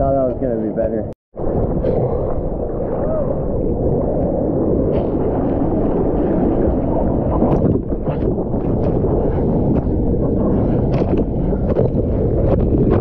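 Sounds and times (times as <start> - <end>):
muffled rush of surf water: 1.4 - 13.0
water splashes: 1.4 - 13.0.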